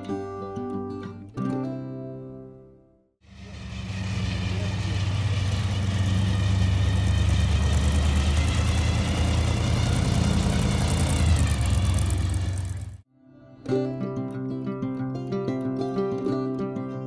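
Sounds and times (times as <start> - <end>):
car engine rumbling: 3.3 - 13.0.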